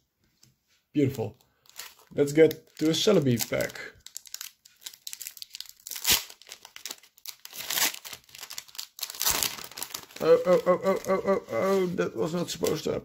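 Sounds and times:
foil wrapper crinkling and tearing: 1.5s - 13.0s.

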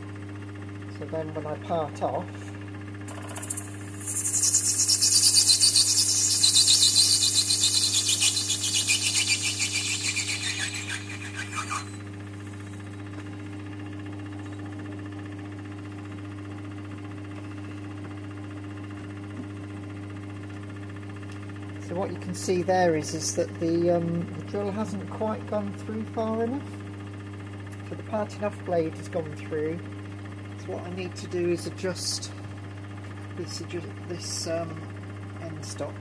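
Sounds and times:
lathe motor humming: 1.7s - 13.0s
parting-off tool screeching: 3.1s - 13.0s.

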